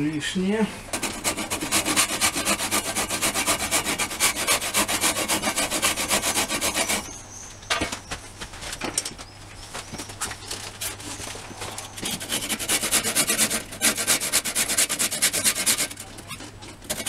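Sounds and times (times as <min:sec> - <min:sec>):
handsaw cutting wood: 0:00.9 - 0:07.1, 0:11.9 - 0:16.2.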